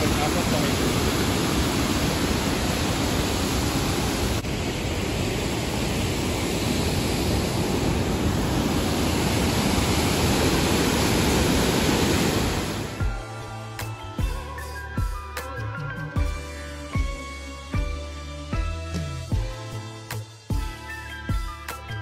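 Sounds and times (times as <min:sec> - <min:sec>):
waterfall rushing: 0:00.0 - 0:13.1.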